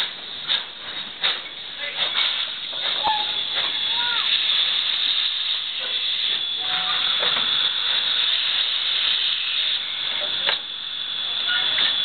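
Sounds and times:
steam locomotive hissing: 0:00.0 - 0:12.0
thin high tone: 0:03.0 - 0:04.8, 0:05.8 - 0:12.0.

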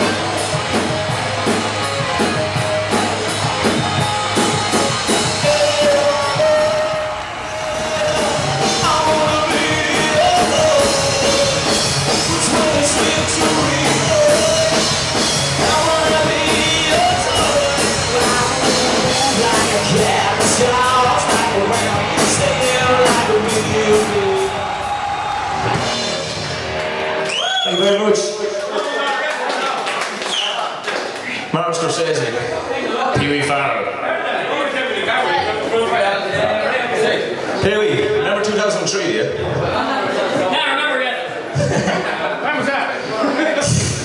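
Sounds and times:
drum kit with cymbal hits: 0:00.0 - 0:27.6
electric guitar: 0:00.0 - 0:27.7
man singing: 0:05.1 - 0:24.8.

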